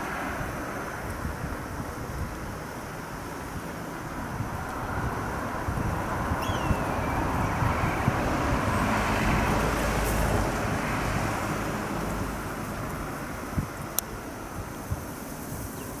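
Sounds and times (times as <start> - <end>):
distant engine rumble: 3.2 - 14.7.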